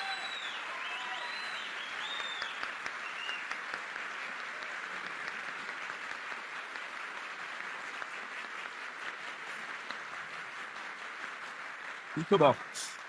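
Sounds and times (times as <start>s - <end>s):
high-pitched crowd calls: 0.0s - 1.6s
audience applauding: 0.0s - 13.0s.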